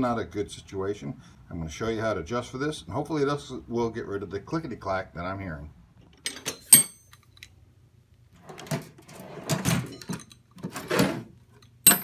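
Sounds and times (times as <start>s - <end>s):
metal tools clattering in drawer: 6.3s - 7.1s, 8.6s - 11.2s
sharp ringing metal clinks: 6.7s - 7.2s.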